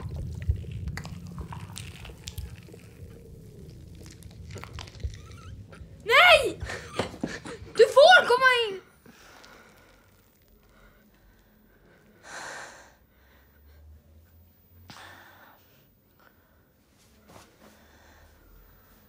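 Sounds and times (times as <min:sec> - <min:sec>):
faint low hum: 0:00.0 - 0:19.0
person breathing: 0:09.0 - 0:13.9, 0:17.6 - 0:19.0.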